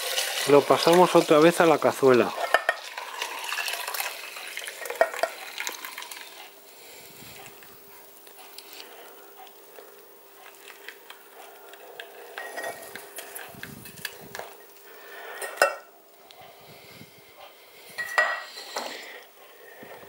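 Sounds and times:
liquid pouring into a saucepan: 0.0s - 6.5s
kitchenware clinking against a pan: 2.1s - 3.6s, 4.8s - 5.4s, 12.4s - 13.0s, 15.4s - 15.9s, 18.0s - 18.9s.

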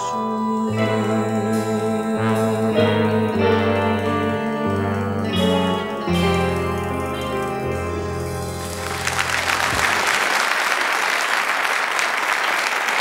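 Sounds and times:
held musical chord: 0.0s - 10.4s
audience applauding: 6.8s - 13.0s.

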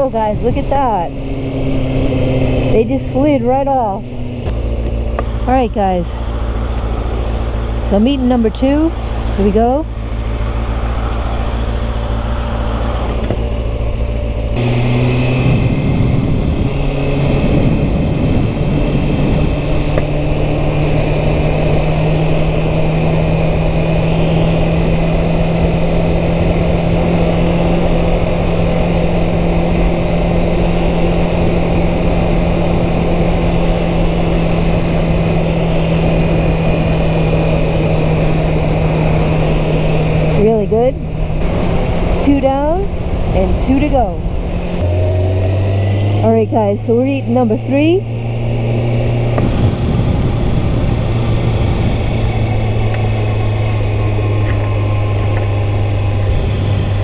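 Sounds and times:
motorcycle engine revving: 0.0s - 57.0s
wind on microphone: 14.6s - 46.8s, 48.0s - 57.0s.

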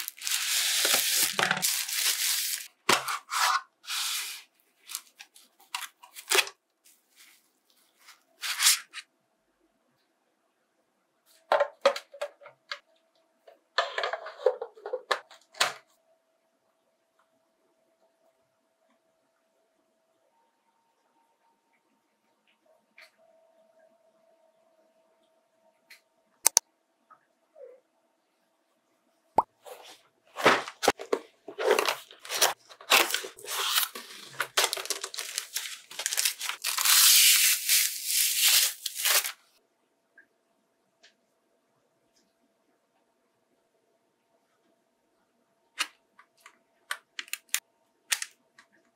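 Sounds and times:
cardboard packaging rustling: 0.0s - 3.5s, 30.4s - 39.4s.

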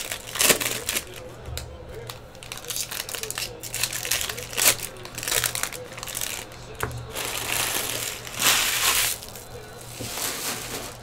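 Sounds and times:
foil wrapper crinkling: 0.0s - 1.3s, 2.0s - 11.0s.

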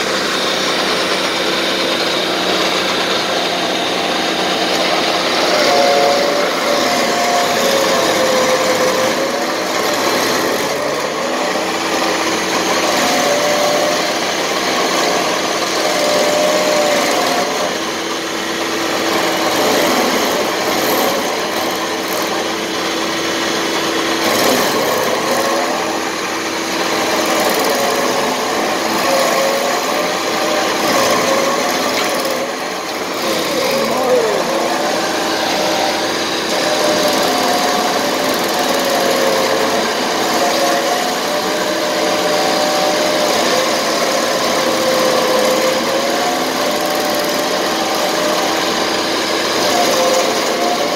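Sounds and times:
engine running: 0.0s - 50.9s
stump grinder grinding wood: 0.0s - 50.9s.

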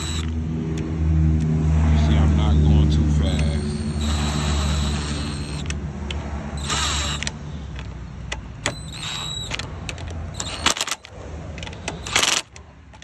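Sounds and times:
cordless driver whirring: 0.0s - 0.9s, 3.2s - 7.9s, 8.6s - 12.6s
sharp clicks: 3.3s - 13.0s.

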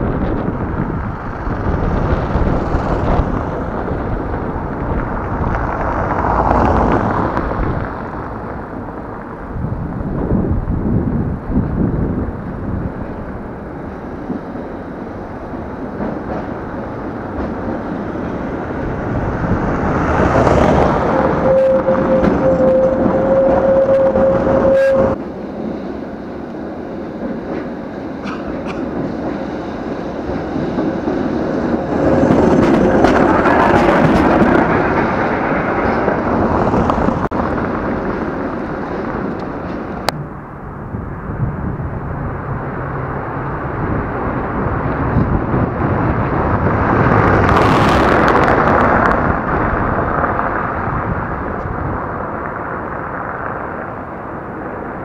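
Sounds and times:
cars passing on cobblestones: 0.0s - 55.0s
tram wheels rumbling on rails: 0.0s - 55.0s
high whine: 18.8s - 26.6s.

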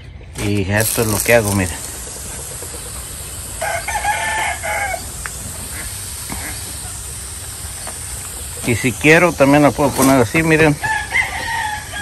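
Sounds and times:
pump sprayer hissing: 0.4s - 12.0s
rooster crowing: 3.5s - 5.2s, 10.8s - 12.0s.

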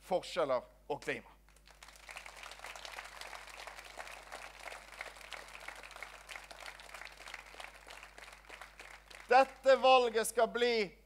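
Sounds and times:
audience applauding: 1.5s - 9.6s.

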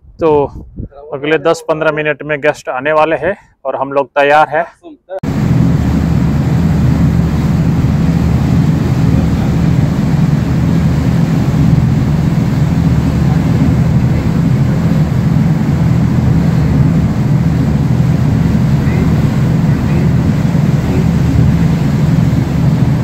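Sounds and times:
boat engine humming: 5.2s - 23.0s.

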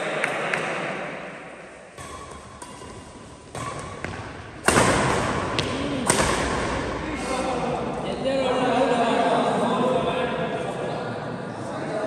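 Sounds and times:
racket hitting shuttlecock: 1.9s - 7.0s.

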